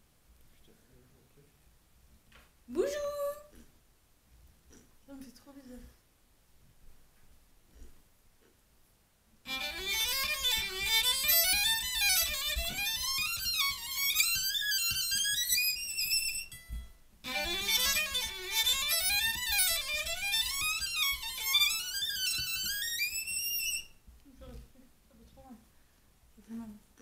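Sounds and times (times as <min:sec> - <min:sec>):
solo violin fast runs: 0:09.5 - 0:16.5, 0:17.2 - 0:23.9.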